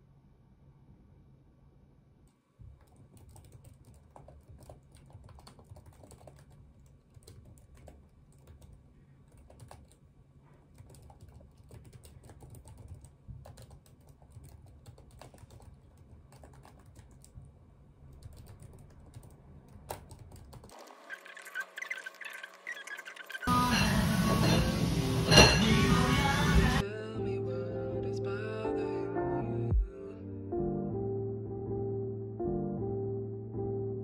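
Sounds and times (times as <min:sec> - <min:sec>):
low room hum: 0:00.0 - 0:20.7
typing on laptop keyboard: 0:02.8 - 0:10.0, 0:10.6 - 0:17.5, 0:18.1 - 0:23.3.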